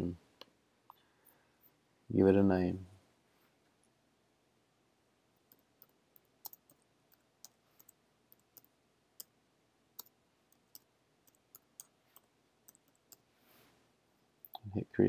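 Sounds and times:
keyboard typing: 0:05.4 - 0:09.3, 0:10.0 - 0:13.3.

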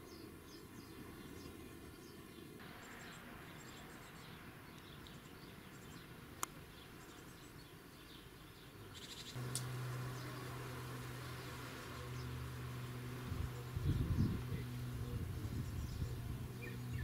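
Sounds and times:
small birds chirping: 0:00.0 - 0:17.0
insect buzzing in flight: 0:09.4 - 0:17.0.

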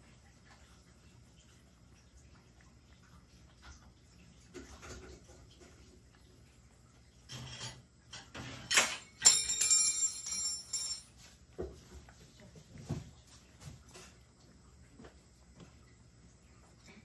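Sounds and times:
cat licking and chewing: 0:00.0 - 0:07.3, 0:11.2 - 0:17.0
sharp ringing clink: 0:08.7 - 0:11.2.

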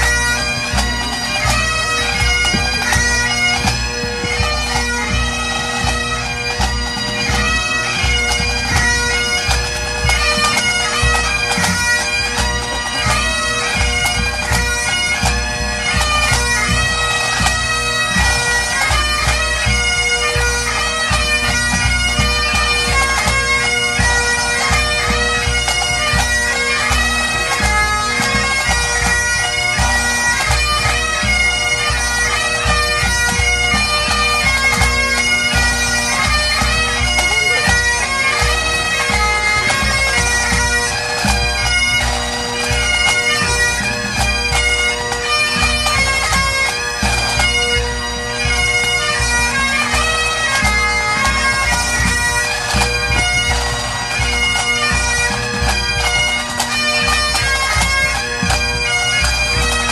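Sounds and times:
drums beating: 0:00.0 - 0:48.8
bagpipes melody with drones: 0:00.0 - 0:59.9.

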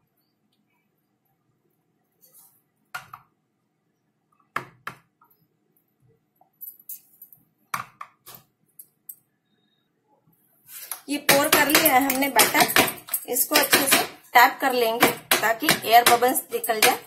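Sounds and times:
bowl and spatula clinking: 0:11.3 - 0:14.3.

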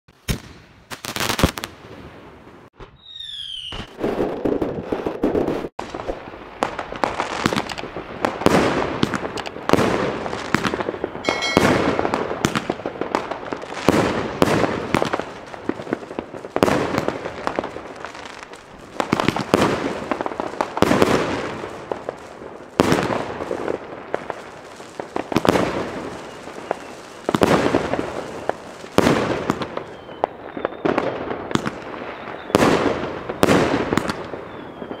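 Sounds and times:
firework battery bangs: 0:08.4 - 0:15.2.

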